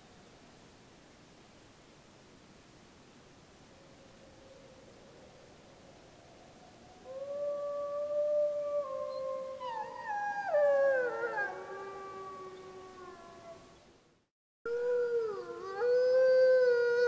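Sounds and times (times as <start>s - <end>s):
wolves howling in chorus: 7.1s - 13.7s, 14.9s - 17.0s.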